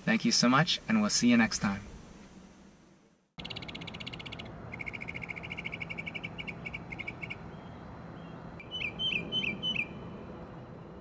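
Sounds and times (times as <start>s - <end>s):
animal chirping trills: 3.4s - 7.7s, 8.6s - 10.0s
sharp falling calls: 3.4s - 7.8s.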